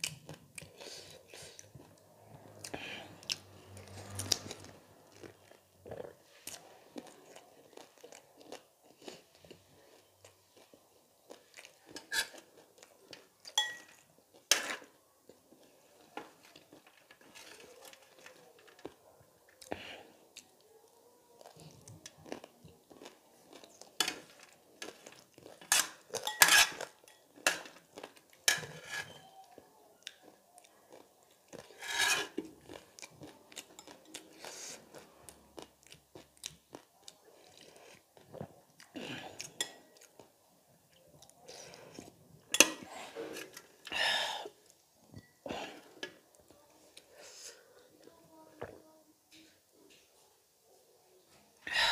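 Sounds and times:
crunching and chewing: 0:00.0 - 0:43.9
metal spoon clinking and scraping: 0:13.6 - 0:14.8, 0:25.6 - 0:27.6, 0:28.5 - 0:29.4, 0:31.7 - 0:32.4, 0:42.5 - 0:43.7.

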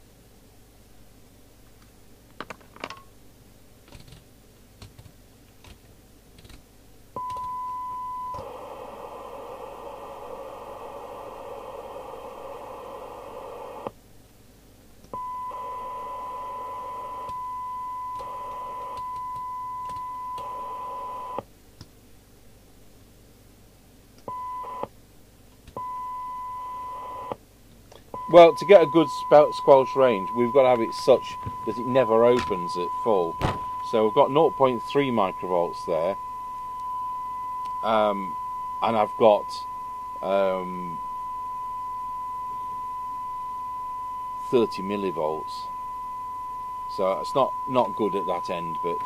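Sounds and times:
receiver hiss: 0:06.4 - 0:14.2, 0:15.0 - 0:21.5, 0:24.1 - 0:49.0
radio test tone: 0:07.2 - 0:13.9, 0:15.2 - 0:21.4, 0:28.2 - 0:49.0.

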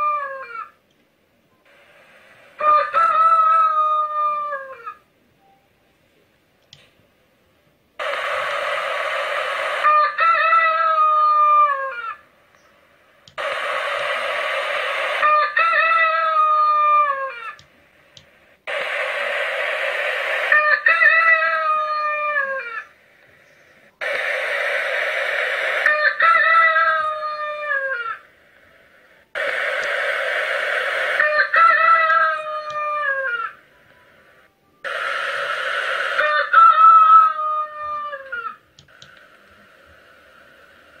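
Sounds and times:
rooster crowing: 0:00.0 - 0:00.7, 0:02.6 - 0:05.0, 0:08.9 - 0:12.2, 0:13.8 - 0:17.6, 0:19.6 - 0:22.9, 0:25.6 - 0:28.2, 0:30.9 - 0:33.6, 0:36.0 - 0:38.6.

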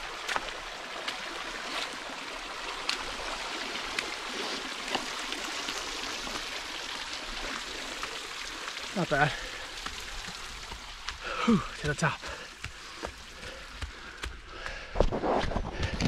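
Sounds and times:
sandal steps on wet stones: 0:00.0 - 0:02.0, 0:02.7 - 0:05.3, 0:09.1 - 0:16.0
creek running over rocks: 0:00.0 - 0:16.0.

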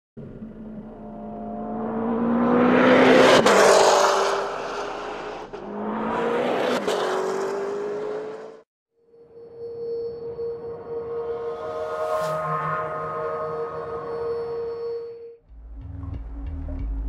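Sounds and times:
car engine accelerating hard: 0:00.2 - 0:08.6.

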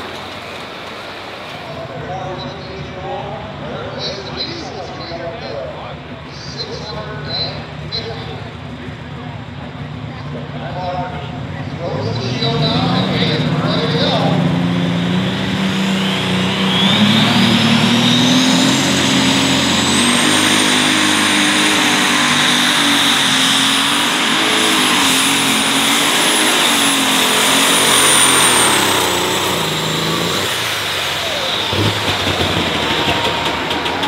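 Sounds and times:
tractor engine at full throttle: 0:00.0 - 0:34.0
high turbo whine: 0:01.4 - 0:34.0.

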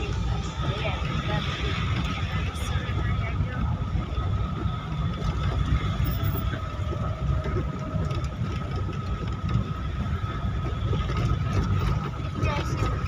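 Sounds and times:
engine and road rumble: 0:00.0 - 0:13.0.

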